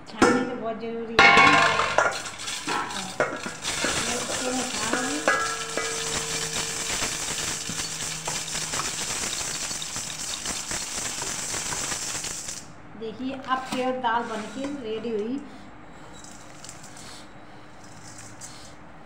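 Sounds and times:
grains rattling in a sieve: 1.7 - 12.7.

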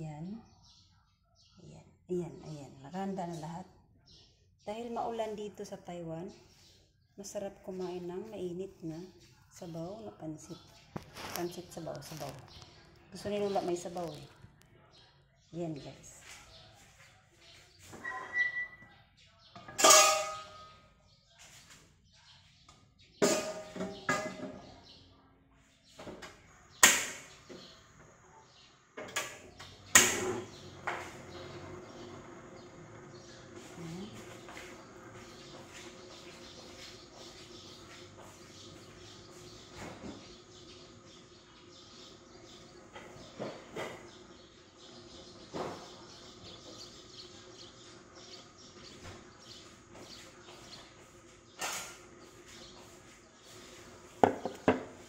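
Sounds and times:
gas burner hissing: 29.2 - 36.4.

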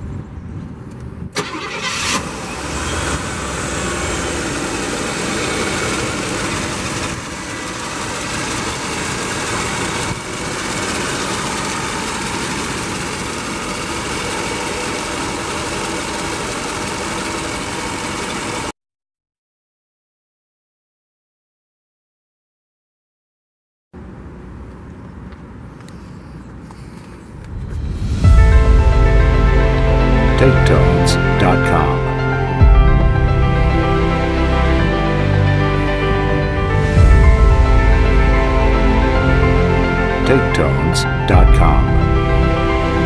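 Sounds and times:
car engine starting and idling: 1.3 - 18.7, 27.0 - 43.0.

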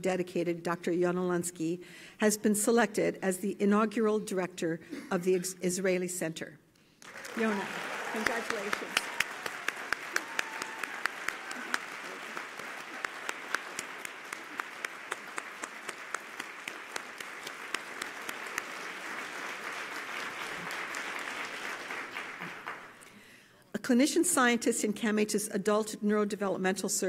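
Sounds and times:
audience applauding: 7.0 - 23.0.

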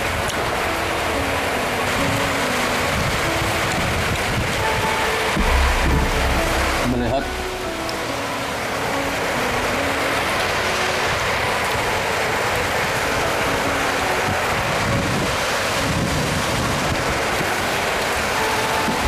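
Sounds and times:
steady rain falling: 0.0 - 19.0
low rumble: 5.4 - 8.3.

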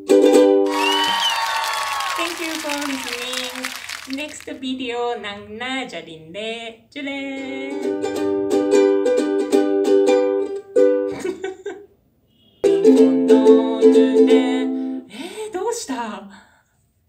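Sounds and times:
ukulele strumming chords: 0.0 - 0.7, 7.4 - 11.1, 12.6 - 15.0.

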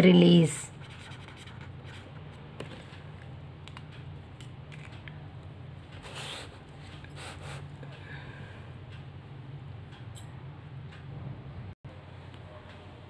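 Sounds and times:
steady low hum: 0.6 - 13.0
notebook rustling scrapes: 6.0 - 7.6.

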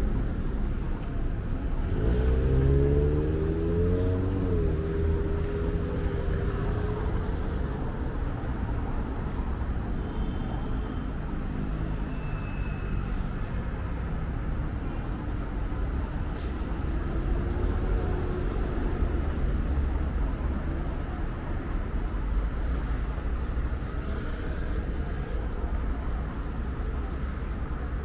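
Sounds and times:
vehicle engine: 0.0 - 9.9
rumble of city traffic: 0.0 - 28.0.

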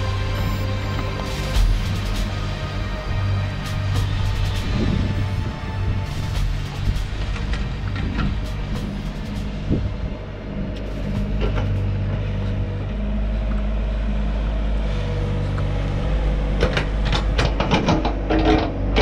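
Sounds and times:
engine running: 0.0 - 19.0
clanks and knocks: 16.6 - 19.0.

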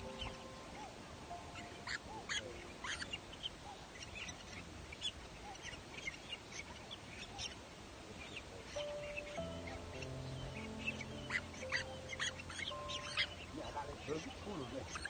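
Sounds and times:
young birds chirping: 0.0 - 15.0
bird squawks: 8.8 - 15.0.

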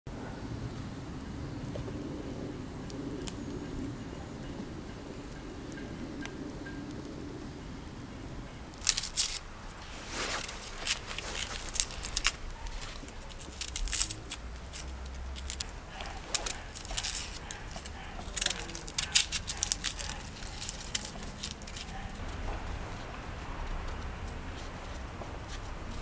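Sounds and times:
onion skin crackling: 6.2 - 26.0.

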